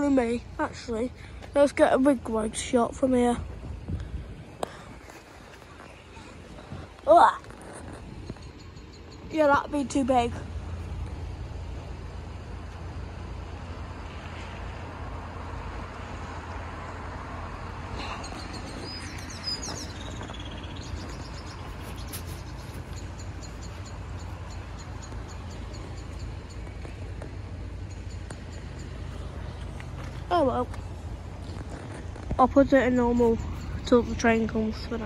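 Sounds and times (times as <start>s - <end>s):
bird chirps: 7.6s - 9.7s, 18.0s - 30.0s.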